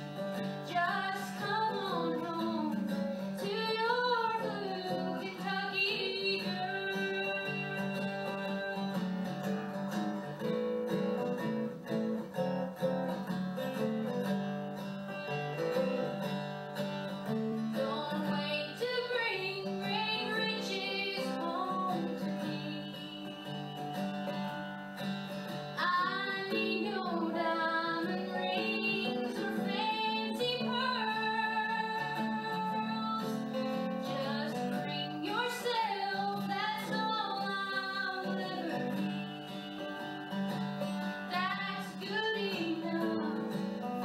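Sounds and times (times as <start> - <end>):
acoustic guitar playing: 0.0 - 44.0
woman singing: 0.6 - 9.7, 17.7 - 24.7, 25.8 - 44.0.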